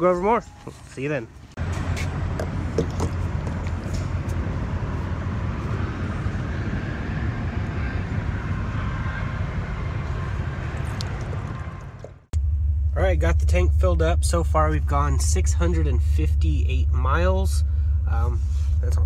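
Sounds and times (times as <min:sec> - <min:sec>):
constant low hum: 0:00.0 - 0:19.0.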